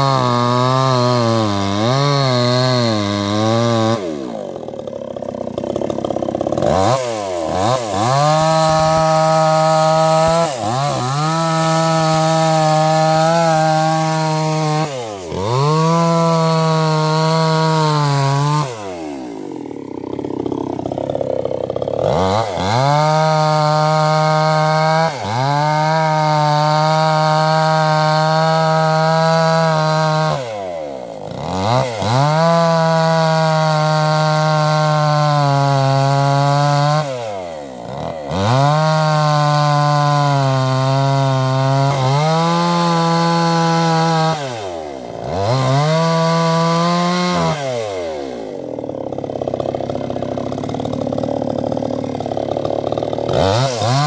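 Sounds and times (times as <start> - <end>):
chainsaw cutting tree trunk: 0.0 - 54.0.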